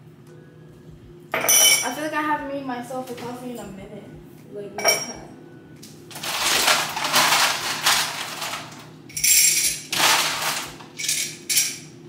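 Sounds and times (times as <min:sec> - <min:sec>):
kitchenware rattling and clinking: 0:04.8 - 0:05.2, 0:06.1 - 0:11.9.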